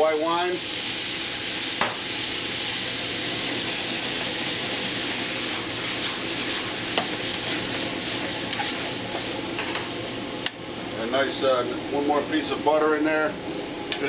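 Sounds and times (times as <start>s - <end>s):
food sizzling in a skillet: 0.0s - 14.0s
tongs tossing and stirring: 5.6s - 9.3s.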